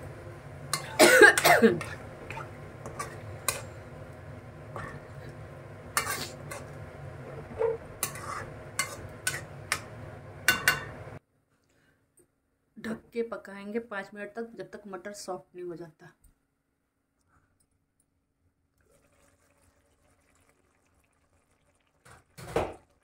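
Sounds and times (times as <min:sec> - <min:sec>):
metal spoon scraping pan: 0:01.7 - 0:03.8, 0:04.7 - 0:05.0, 0:06.0 - 0:09.9.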